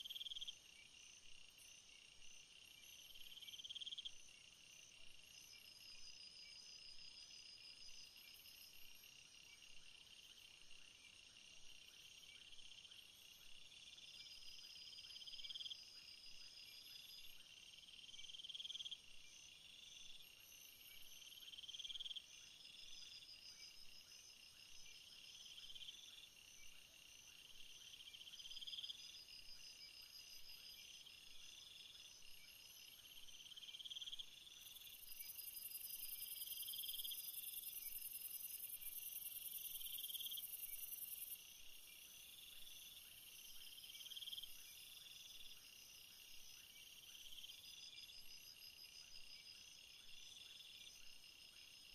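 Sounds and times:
high steady insect buzz: 0:00.0 - 0:51.9
pulsed insect trills: 0:27.1 - 0:51.9
rising insect chirp: 0:30.6 - 0:51.9.

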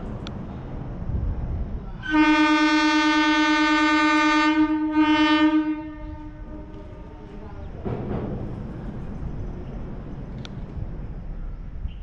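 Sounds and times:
locomotive air horn blast: 0:02.0 - 0:07.4.

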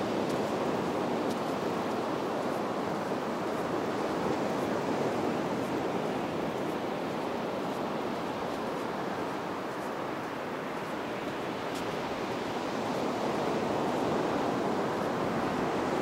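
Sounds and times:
waves breaking on beach: 0:00.0 - 0:16.0.

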